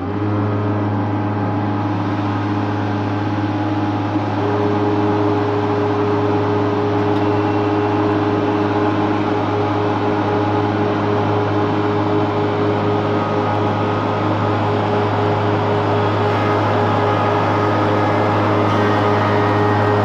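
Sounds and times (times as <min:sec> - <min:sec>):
planer motors humming: 0:00.0 - 0:20.0.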